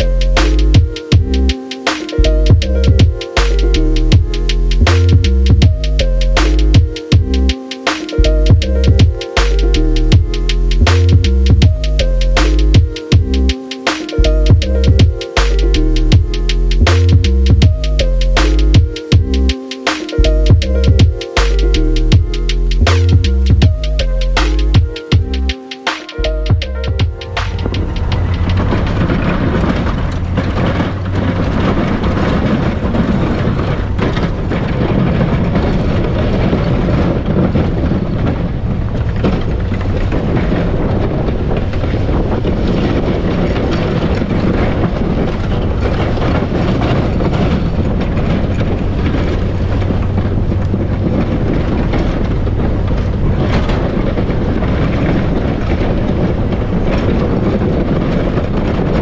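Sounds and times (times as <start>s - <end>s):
tyres crunching through snow: 0.0s - 59.0s
wind noise on microphone: 0.0s - 59.0s
pickup engine under load: 26.2s - 59.0s
plow blade scraping snow: 26.2s - 59.0s.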